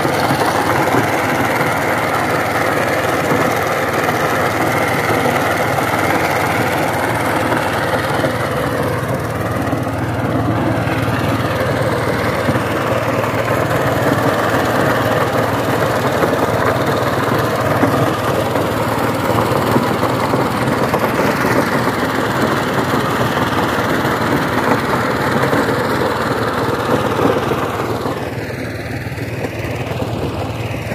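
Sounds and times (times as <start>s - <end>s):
power tiller diesel engine running: 0.0s - 30.9s.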